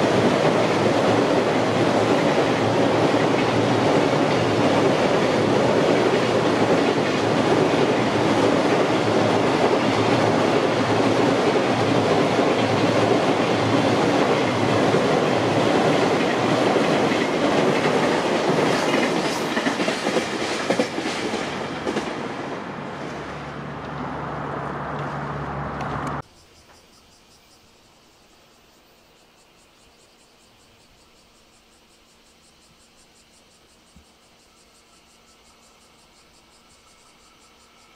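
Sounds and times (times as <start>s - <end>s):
wheels clacking over rail joints: 0.0s - 24.0s
freight train wheels rumbling: 0.0s - 26.2s.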